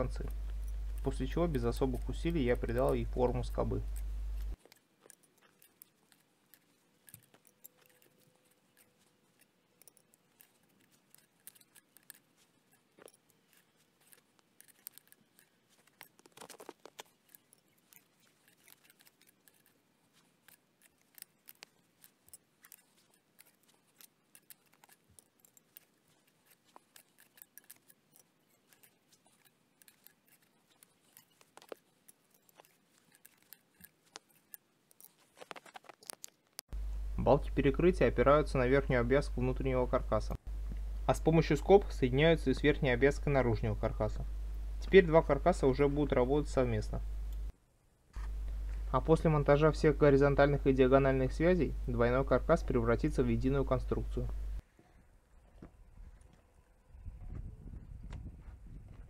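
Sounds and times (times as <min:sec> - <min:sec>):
metallic clicks and scrapes: 0:00.0 - 0:36.8.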